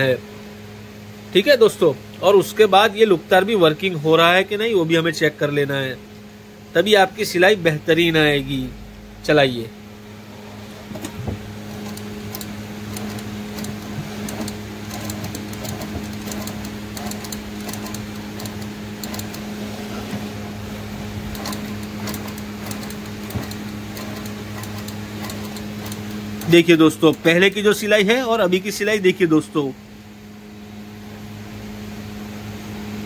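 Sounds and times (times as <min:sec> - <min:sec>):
sewing machine running: 0:10.5 - 0:27.7.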